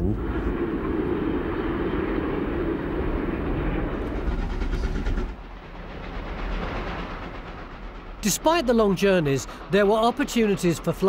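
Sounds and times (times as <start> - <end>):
steam locomotive running at speed: 0.0 - 11.0.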